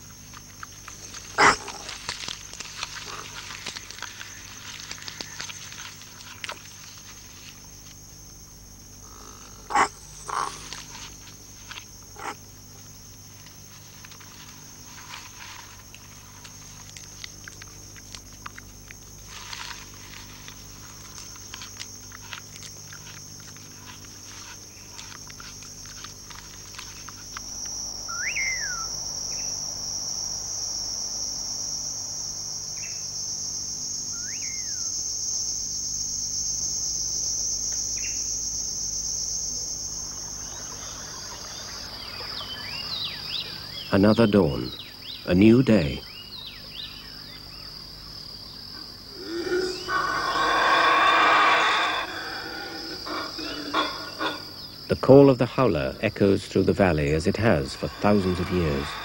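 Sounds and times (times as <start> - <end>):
insects chirring: 0.0 - 59.0
call sweeping up and down: 28.0 - 28.9, 57.1 - 59.0.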